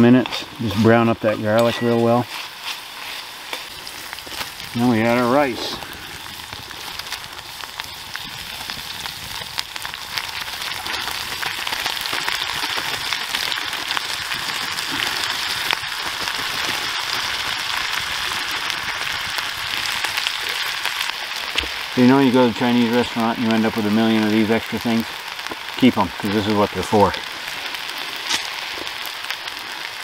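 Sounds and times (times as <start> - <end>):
food sizzling in a skillet: 0.0 - 30.0
small pops: 27.0 - 29.7.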